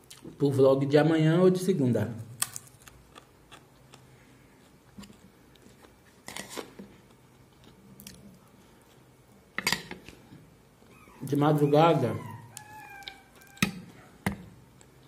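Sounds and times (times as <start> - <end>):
person chewing crispy food: 2.4 - 9.0.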